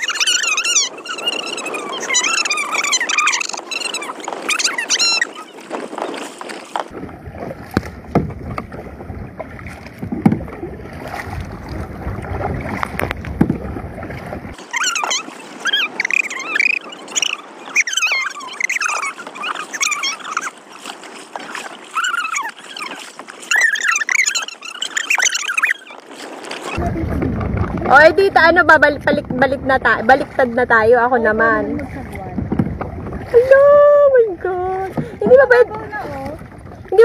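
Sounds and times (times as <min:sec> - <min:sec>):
wind rumble on microphone: 0:00.0 - 0:14.6, 0:26.1 - 0:37.0
paddle strokes splashing: 0:00.0 - 0:37.0
paddle knocking on kayak: 0:05.7 - 0:14.6, 0:26.8 - 0:33.6, 0:34.4 - 0:37.0.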